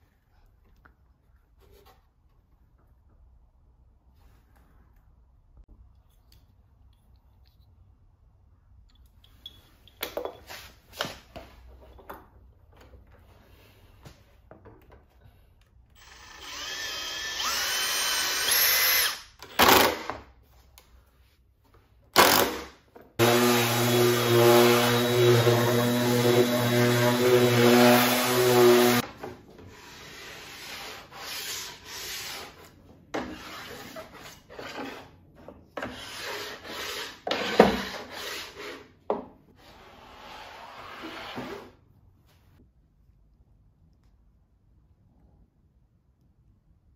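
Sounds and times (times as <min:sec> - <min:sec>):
cordless drill whining: 0:16.0 - 0:19.2.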